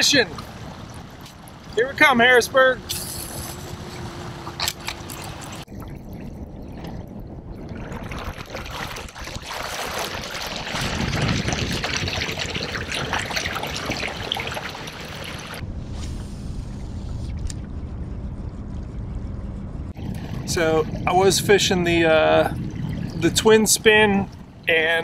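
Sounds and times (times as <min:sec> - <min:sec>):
water rushing along kayak hull: 0:00.0 - 0:02.9, 0:03.6 - 0:05.7, 0:07.6 - 0:15.6, 0:20.0 - 0:25.0.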